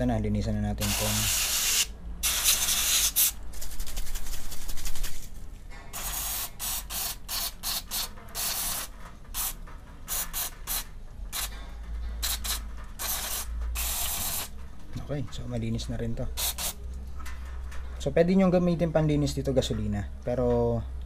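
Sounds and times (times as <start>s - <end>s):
aerosol spray hissing: 0.8s - 3.4s, 6.0s - 10.8s, 12.2s - 14.5s.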